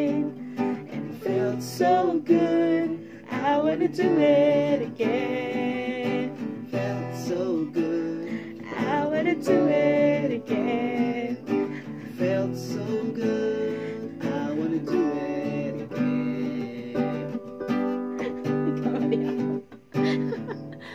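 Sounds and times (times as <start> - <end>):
acoustic guitar strumming: 0.0 - 20.9
keyboard chords: 8.5 - 20.9.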